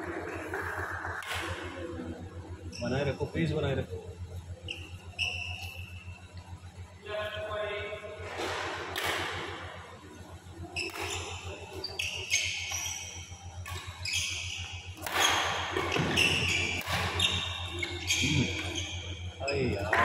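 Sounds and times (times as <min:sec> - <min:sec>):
shoe squeaks on court: 0:04.7 - 0:06.2, 0:10.8 - 0:19.8
racket striking shuttlecock: 0:08.4 - 0:09.6, 0:15.0 - 0:17.3.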